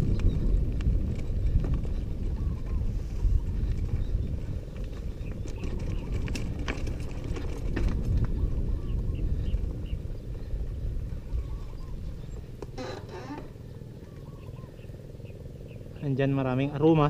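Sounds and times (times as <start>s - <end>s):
wind rumble on microphone: 0.0s - 17.0s
mountain bike rattling and knocking: 3.5s - 11.2s.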